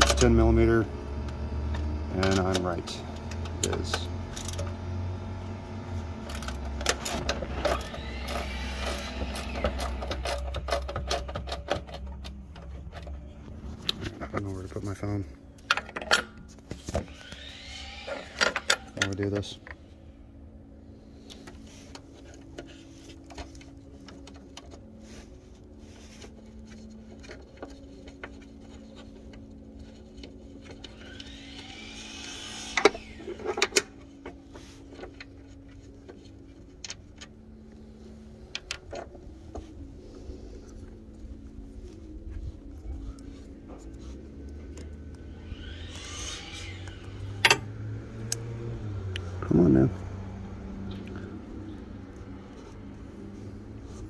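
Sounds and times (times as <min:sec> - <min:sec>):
wrench and metal parts clicking: 0:06.4 - 0:13.1
rising whoosh: 0:45.2 - 0:49.4.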